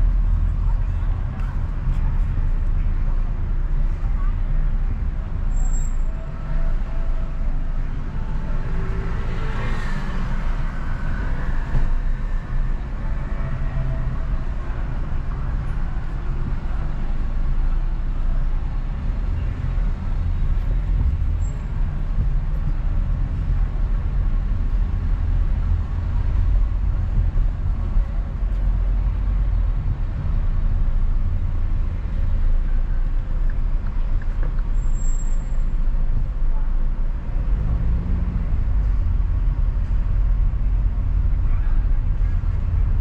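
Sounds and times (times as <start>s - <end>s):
car engine and tyre rumble: 0.0s - 43.0s.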